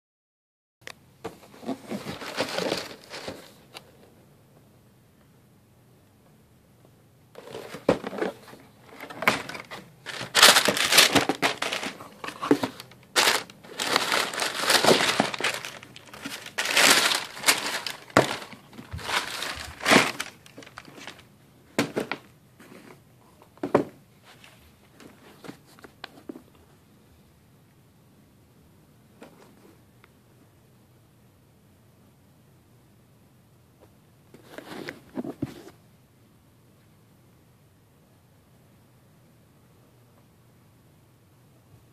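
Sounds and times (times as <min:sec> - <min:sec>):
paper crinkling and rustling: 0:01.5 - 0:03.8, 0:07.4 - 0:22.8.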